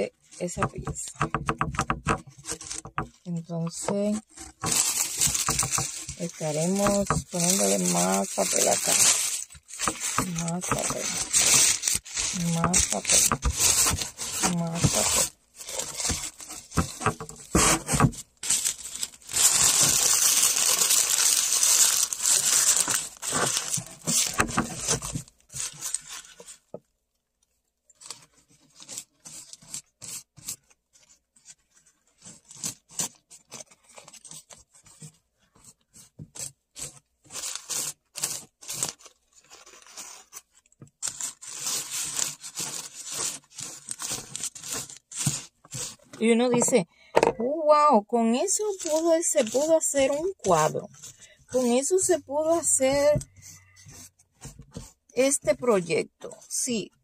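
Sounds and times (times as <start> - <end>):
paper tearing and crumpling: 4.0 - 26.6, 32.1 - 35.0, 36.4 - 46.1, 48.4 - 54.9.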